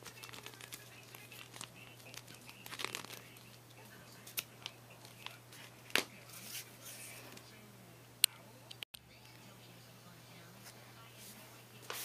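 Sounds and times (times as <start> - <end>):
adhesive tape crinkling: 0.0 - 3.6.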